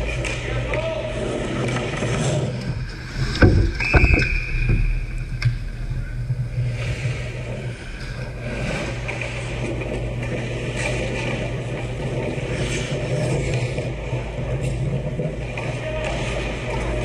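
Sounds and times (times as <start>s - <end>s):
skates scraping on ice: 0.1s - 5.0s, 6.6s - 17.0s
puck and stick knocks: 3.2s - 5.5s.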